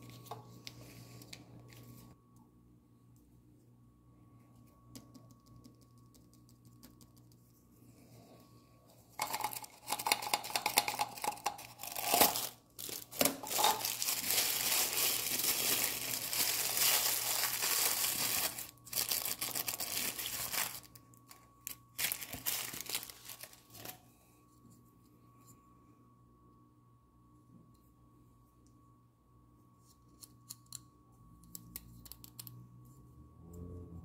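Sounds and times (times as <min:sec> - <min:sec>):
paper wrapper crinkling: 0:09.2 - 0:24.0.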